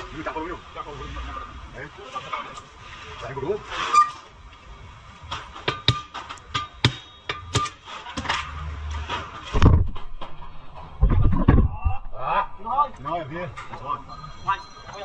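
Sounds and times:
low rumble: 8.5s - 13.4s
heavy thump: 9.5s - 12.0s.

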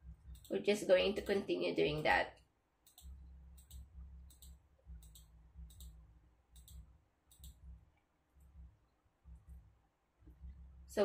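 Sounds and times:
low hum: 0.0s - 2.1s, 2.8s - 11.0s
computer mouse clicking: 0.3s - 0.6s, 2.8s - 8.5s.

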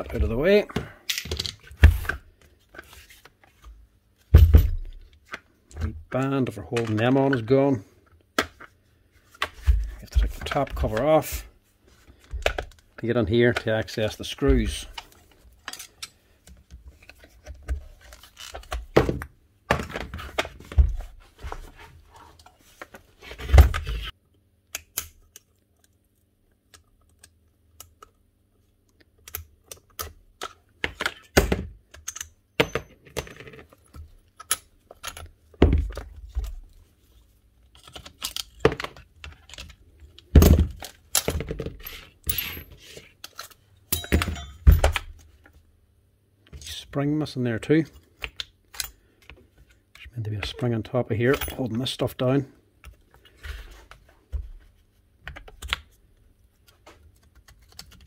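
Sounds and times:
metal parts and tools clattering: 15.6s - 16.2s, 40.4s - 45.1s.

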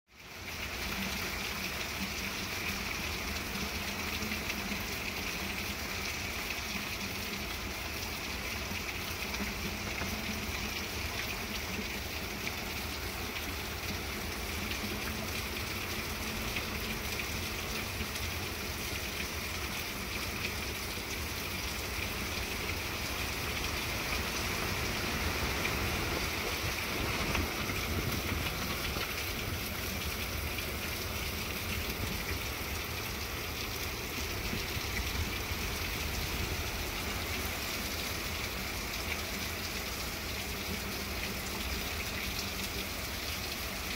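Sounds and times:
heavy rain pouring on plants and pavement: 0.1s - 43.9s.

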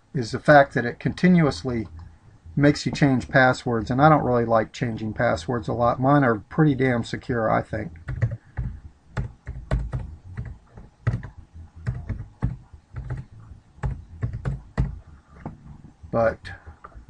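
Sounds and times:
typing on computer keyboard: 8.0s - 15.0s.

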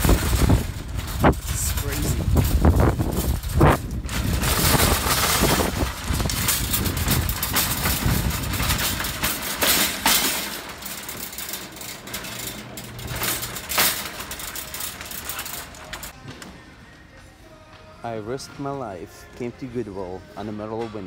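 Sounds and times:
wind rumbling on microphone: 0.0s - 9.6s.

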